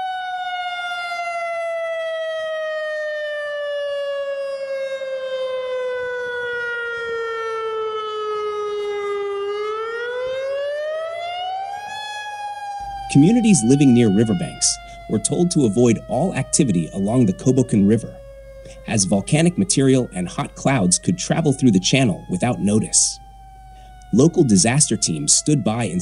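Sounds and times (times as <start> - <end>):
warning siren wailing: 0.0 - 26.0.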